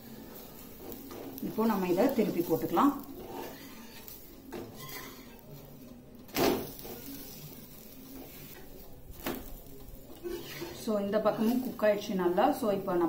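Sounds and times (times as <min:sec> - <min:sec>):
spatula scraping a hot griddle: 0:00.0 - 0:12.0.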